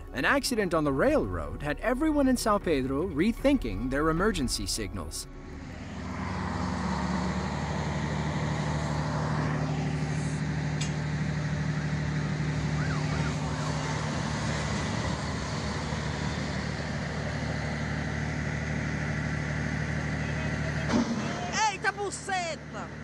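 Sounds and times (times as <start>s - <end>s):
diesel locomotive engine drone: 0.0s - 23.0s
rail and wheel noise: 5.3s - 23.0s.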